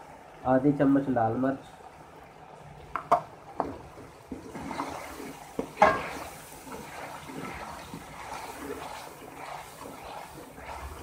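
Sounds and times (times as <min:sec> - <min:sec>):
low sizzle: 0:00.0 - 0:11.0
metal spoon scraping a pan: 0:04.6 - 0:05.2, 0:05.8 - 0:11.0.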